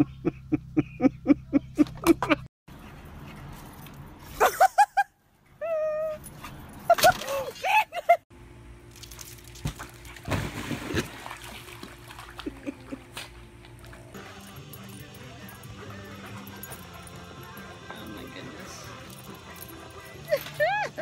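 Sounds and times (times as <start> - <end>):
dog whining: 5.6 - 7.0
water splashing in a pool: 8.9 - 14.0.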